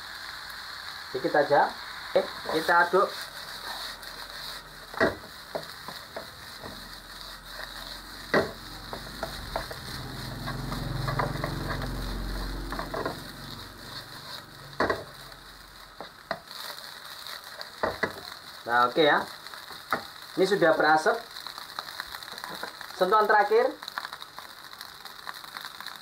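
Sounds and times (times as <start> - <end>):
fried rice sizzling in a wok: 0.0 - 26.0
low rumbling swell: 7.0 - 15.8.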